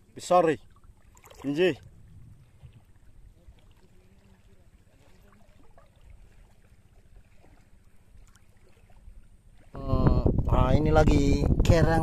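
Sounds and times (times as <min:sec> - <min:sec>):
faint low rumbling: 0:01.7 - 0:04.6
faint distant voices: 0:03.2 - 0:06.7.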